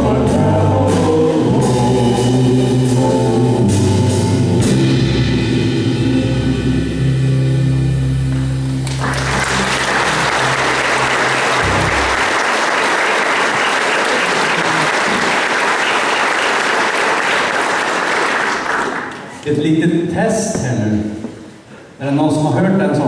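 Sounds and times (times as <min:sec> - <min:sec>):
keyboard and electric guitar chord: 0:00.0 - 0:12.4
audience applauding: 0:08.8 - 0:19.4.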